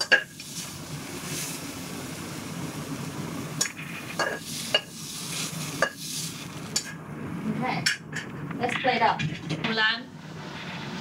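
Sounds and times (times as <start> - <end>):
low background hum: 0.0 - 11.0
utensil scraping metal wok: 3.6 - 6.9.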